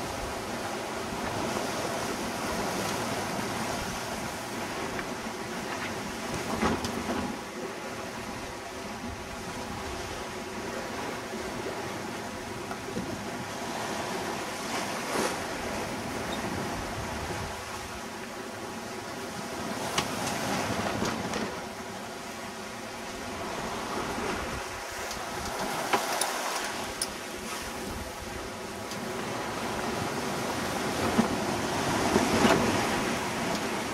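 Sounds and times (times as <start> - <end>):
water rushing along boat hull: 0.0 - 33.9
wind: 0.0 - 33.9.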